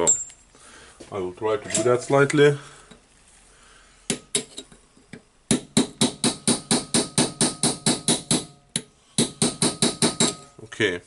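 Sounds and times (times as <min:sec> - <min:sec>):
hammer striking steel punch: 0:05.5 - 0:10.5.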